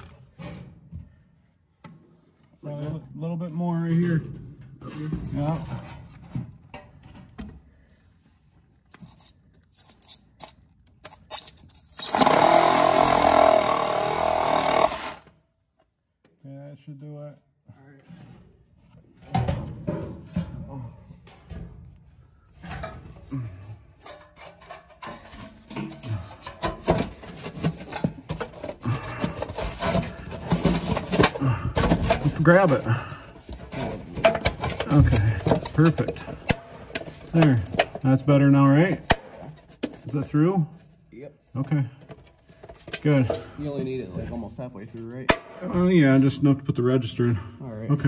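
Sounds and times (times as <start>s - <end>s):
reciprocating saw cutting wood: 12.0s - 15.3s.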